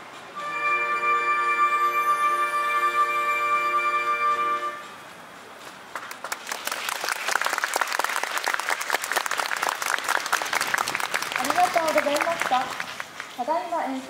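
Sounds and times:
wind band held chord: 0.0 - 5.3
audience applause: 5.9 - 13.4.

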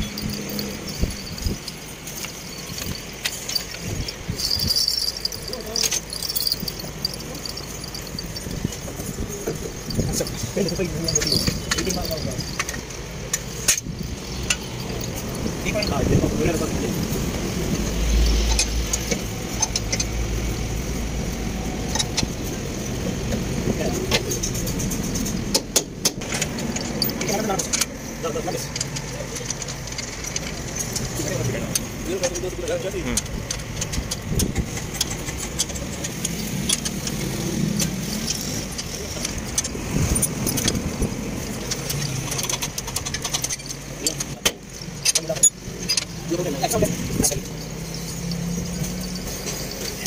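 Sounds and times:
spanner clicking on a nut: 0.0 - 15.9, 18.3 - 20.2, 24.1 - 41.0, 41.6 - 50.0
light metallic clinks: 0.0 - 20.8, 26.2 - 50.0
low steady rumble: 0.0 - 21.6.

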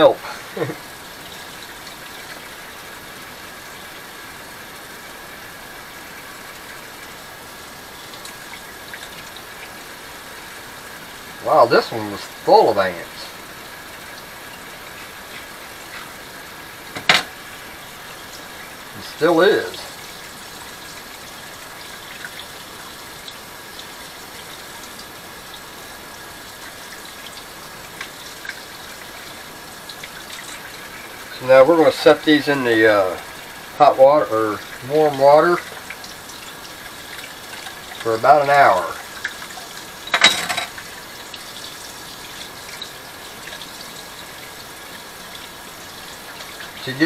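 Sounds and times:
faucet running into sink: 26.5 - 47.0.

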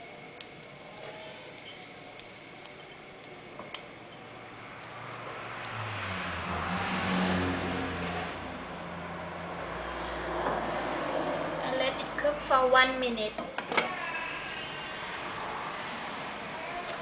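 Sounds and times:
vehicle engine revving: 5.0 - 11.6.

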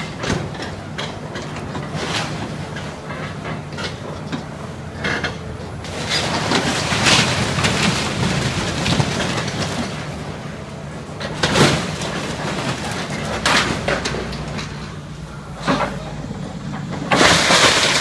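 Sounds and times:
excavator diesel engine running: 0.0 - 18.0
splintering timber cracking: 16.8 - 18.0.

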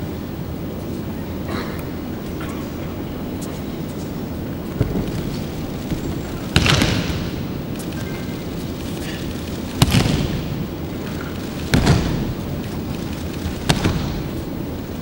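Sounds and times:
background hum: 0.0 - 15.0
body slapping onto mats: 4.6 - 14.6.

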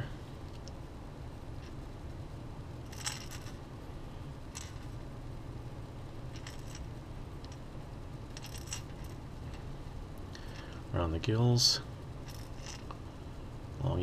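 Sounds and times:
low hum: 0.0 - 14.0
light metallic clinks: 12.3 - 13.0.

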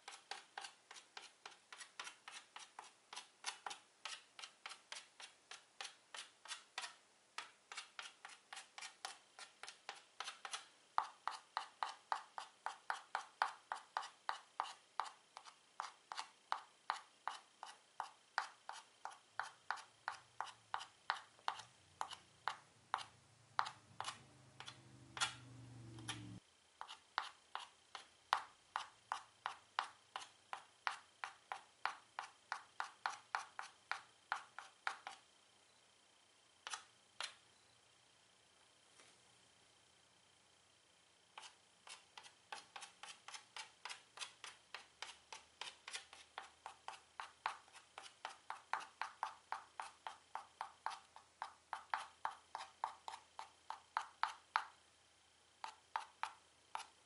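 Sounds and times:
chalk tapping on chalkboard: 0.0 - 35.2, 41.4 - 54.8, 55.6 - 57.0
low hum: 24.2 - 26.4.

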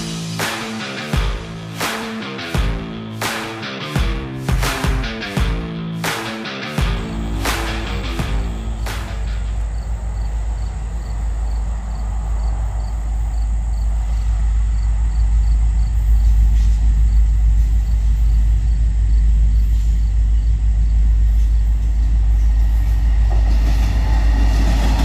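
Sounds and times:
diesel locomotive rumble: 6.8 - 25.0.

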